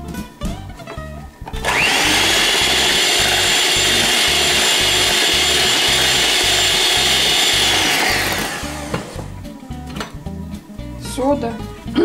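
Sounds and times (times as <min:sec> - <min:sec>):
electric hand mixer whirring: 0:01.6 - 0:09.4.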